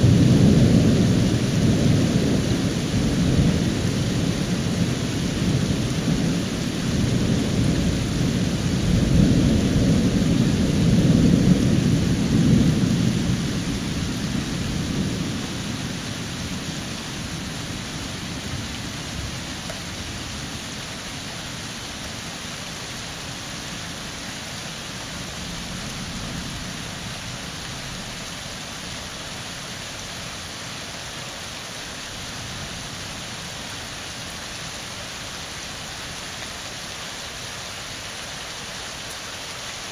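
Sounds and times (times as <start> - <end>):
thunder rumbling: 0.0 - 20.4
steady rain hiss: 0.0 - 39.9.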